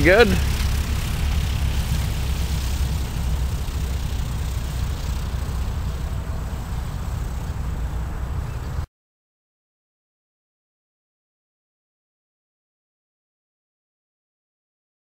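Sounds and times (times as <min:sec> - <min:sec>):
distant airplane engine drone: 0:00.0 - 0:08.9.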